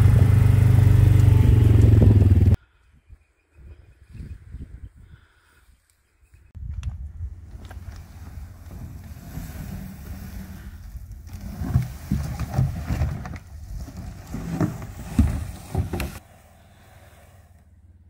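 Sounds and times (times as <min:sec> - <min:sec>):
wind buffeting microphone: 0:00.2 - 0:05.4
plastic drums dragged over ground: 0:07.4 - 0:17.7.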